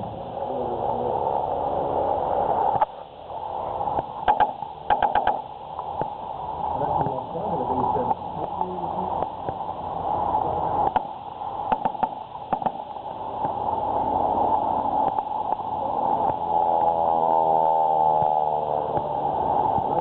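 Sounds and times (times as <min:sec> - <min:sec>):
biplane engines flying overhead: 0:00.0 - 0:20.0
sharp cracks: 0:03.9 - 0:06.2, 0:10.8 - 0:13.6.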